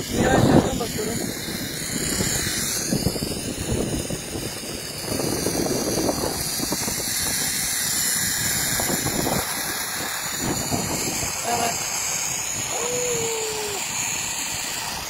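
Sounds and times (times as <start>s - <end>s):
pulleys rumbling along cable: 0.0s - 15.0s
wind buffeting microphone: 0.0s - 15.0s.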